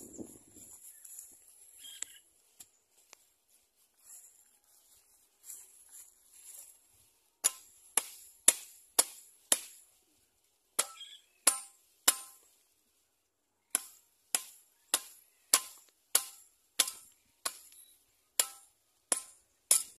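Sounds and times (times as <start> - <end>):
soft rustling: 0.0 - 7.4
machete striking barbed wire: 7.4 - 9.8, 10.8 - 12.5, 13.7 - 17.8, 18.4 - 20.0.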